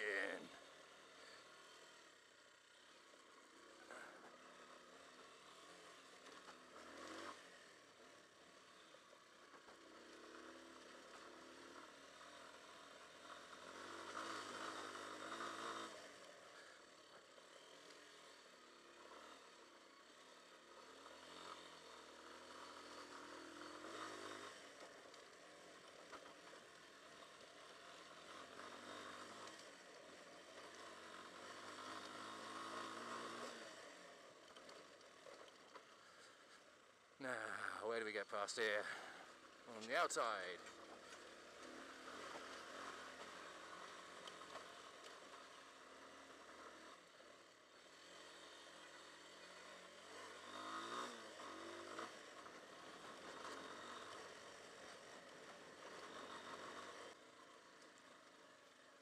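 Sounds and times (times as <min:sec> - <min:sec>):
motorcycle engine revving: 0:03.5 - 0:07.6, 0:09.8 - 0:16.8, 0:20.5 - 0:36.4, 0:47.7 - 0:57.2.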